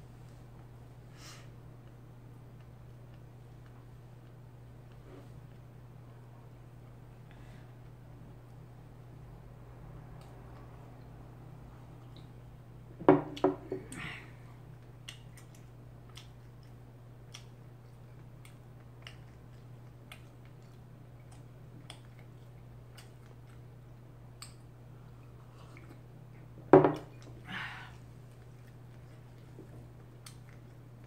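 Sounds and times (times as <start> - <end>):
steady low hum: 0.0 - 31.0
mug knocking on wooden table: 13.0 - 13.6, 26.7 - 27.1.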